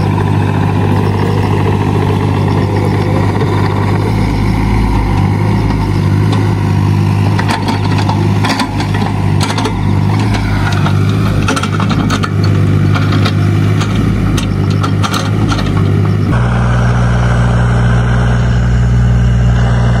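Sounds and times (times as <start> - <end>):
excavator diesel engine running: 0.0 - 20.0
machine clanks and knocks: 7.3 - 16.1.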